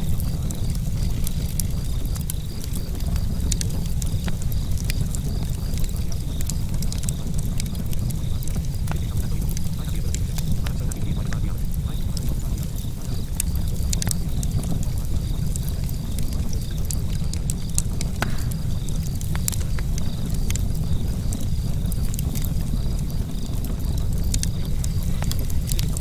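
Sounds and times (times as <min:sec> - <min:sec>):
fire crackling and popping: 0:00.0 - 0:26.0
low rumble: 0:17.4 - 0:21.7.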